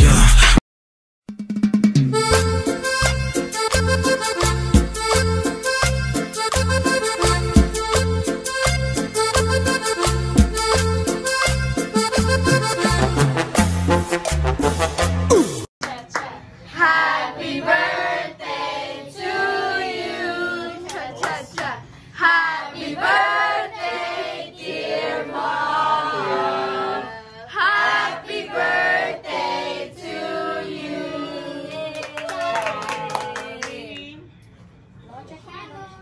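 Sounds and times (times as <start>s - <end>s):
people clapping: 15.8s - 16.3s, 20.8s - 21.8s, 31.7s - 34.2s
women singing together: 16.7s - 32.0s.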